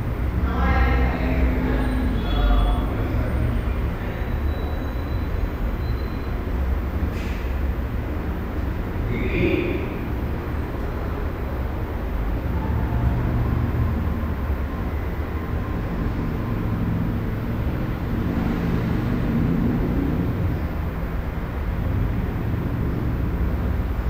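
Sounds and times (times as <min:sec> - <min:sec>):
low rumble: 0:08.2 - 0:23.7.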